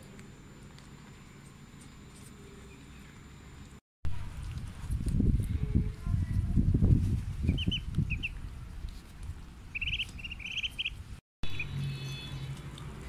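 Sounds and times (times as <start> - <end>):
ducklings peeping: 7.5 - 8.4, 9.7 - 12.6.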